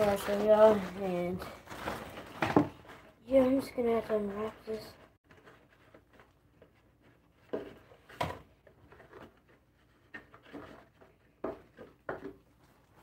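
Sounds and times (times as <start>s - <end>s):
packaging rustling: 0.0s - 3.2s.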